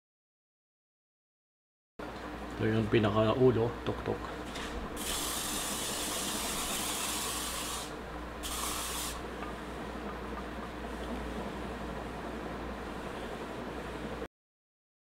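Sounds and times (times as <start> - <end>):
aerosol spray hissing: 5.0 - 9.2.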